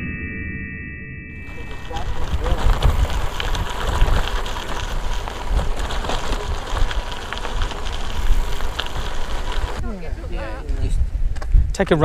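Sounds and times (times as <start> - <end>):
bike rattling and ticking: 1.4 - 9.8
tyres crackling over dirt: 1.4 - 10.8
wind buffeting microphone: 1.4 - 12.0.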